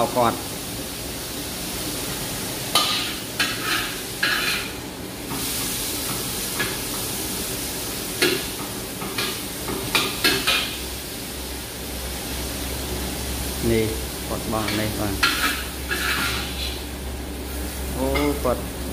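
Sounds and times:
vegetables sizzling: 0.0 - 18.9
metal spatula scraping a wok: 2.8 - 4.8, 14.7 - 16.8.

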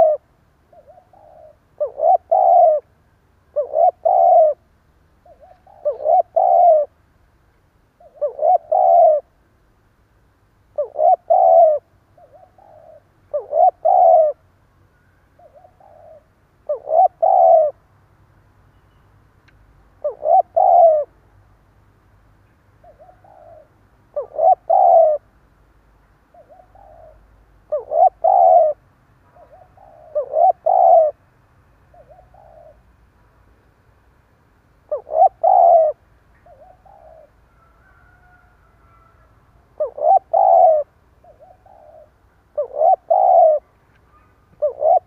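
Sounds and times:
dove cooing: 0.0 - 7.0, 8.0 - 9.4, 10.8 - 14.4, 15.4 - 17.8, 20.0 - 21.2, 22.8 - 25.3, 26.3 - 31.2, 31.9 - 32.9, 34.8 - 45.0.

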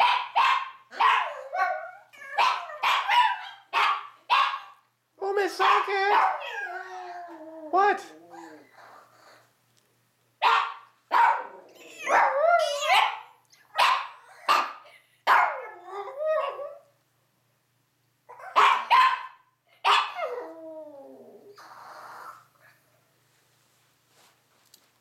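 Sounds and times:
small dogs barking and yapping: 0.0 - 8.8, 10.4 - 16.9, 18.3 - 22.5.

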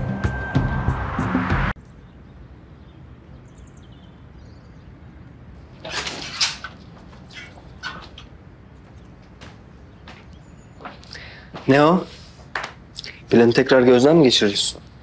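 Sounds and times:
background music: 0.0 - 1.8
door opening with scrape: 5.8 - 8.3.

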